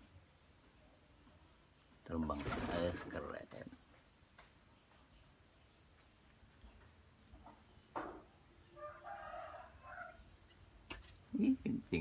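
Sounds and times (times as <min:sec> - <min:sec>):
faint high bird chirps: 0:00.7 - 0:01.6, 0:04.7 - 0:05.8, 0:06.5 - 0:10.9.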